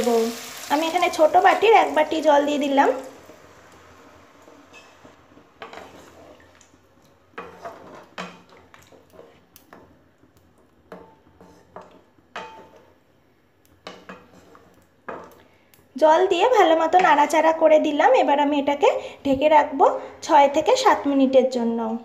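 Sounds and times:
spatula scraping pan: 0:04.4 - 0:06.6, 0:07.3 - 0:10.0, 0:10.9 - 0:13.0, 0:13.8 - 0:15.3.

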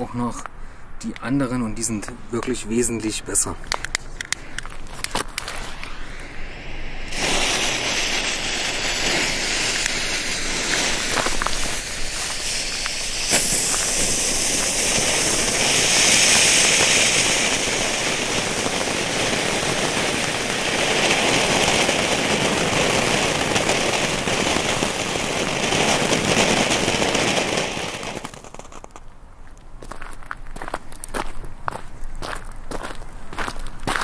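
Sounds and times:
firework fountain hissing: 0:04.3 - 0:29.0.

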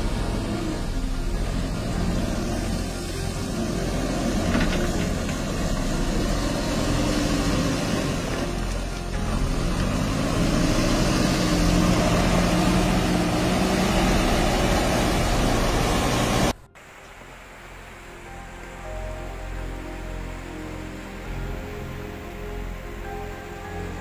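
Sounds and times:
diesel engine running under load: 0:00.0 - 0:16.6.

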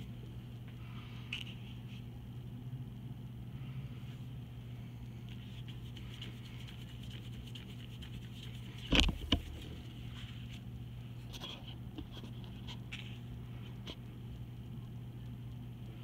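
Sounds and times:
paintbrush brushing across paper: 0:05.3 - 0:10.7.

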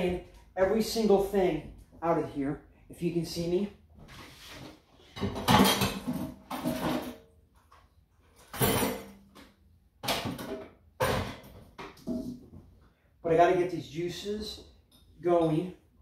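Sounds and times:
kitchenware clattering and clinking: 0:05.0 - 0:07.4, 0:08.4 - 0:09.4, 0:10.0 - 0:12.4.

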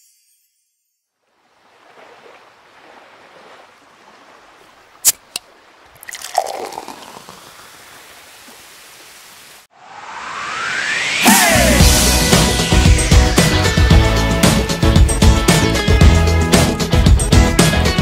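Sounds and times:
steady watery hiss: 0:04.0 - 0:09.7.

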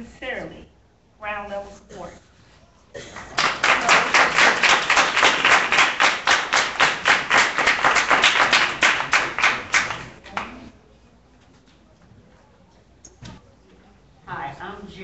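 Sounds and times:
hand clapping: 0:03.1 - 0:10.6.

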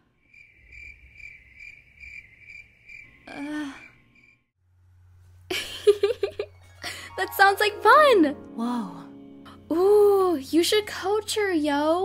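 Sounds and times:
cricket chirping sound effect: 0:00.2 - 0:04.5
person speaking: 0:06.9 - 0:12.0.

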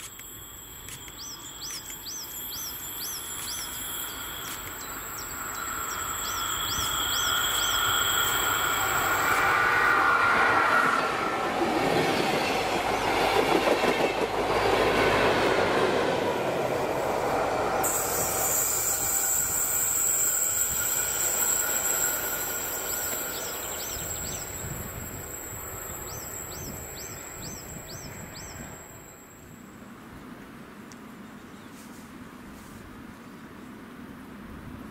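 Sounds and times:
high wheel squeal: 0:00.0 - 0:13.4, 0:16.7 - 0:30.0
train wheels rolling over rails: 0:00.0 - 0:29.6.

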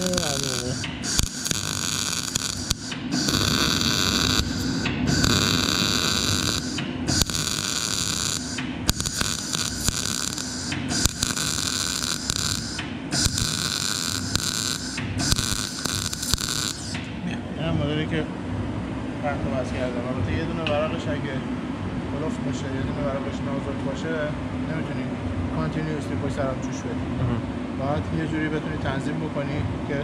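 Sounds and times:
welding arc crackle and hiss: 0:00.0 - 0:17.1.

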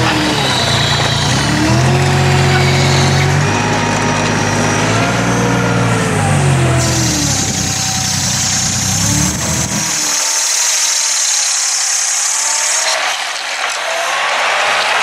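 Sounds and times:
wheel loader engine running: 0:00.0 - 0:10.9
steady high hiss: 0:07.2 - 0:13.1.

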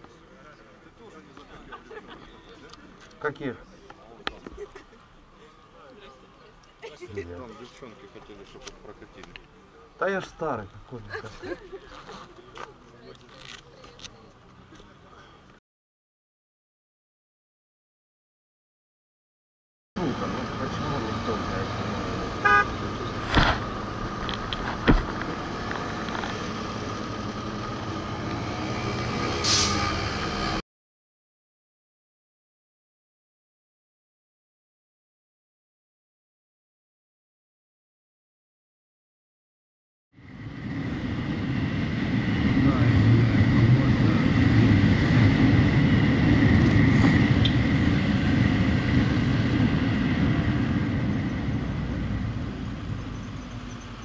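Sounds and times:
drone of traffic: 0:00.0 - 0:15.6, 0:20.0 - 0:30.6, 0:40.2 - 0:54.0
short hiss: 0:29.4 - 0:29.8
wind rushing over microphone: 0:40.2 - 0:54.0.

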